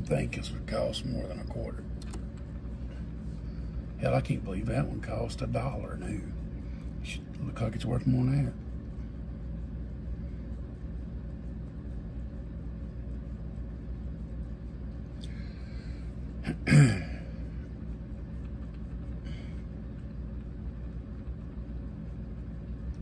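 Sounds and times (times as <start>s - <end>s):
turntable motor hum: 0.0s - 23.0s.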